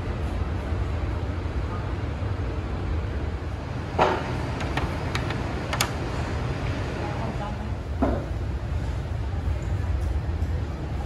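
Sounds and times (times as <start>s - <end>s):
food court hum: 0.0s - 11.0s.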